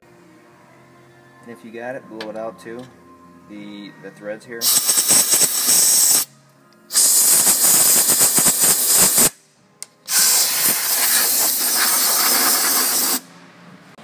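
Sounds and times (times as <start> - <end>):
compressed air hissing blasts: 4.6 - 6.3, 6.9 - 9.4, 10.1 - 13.3.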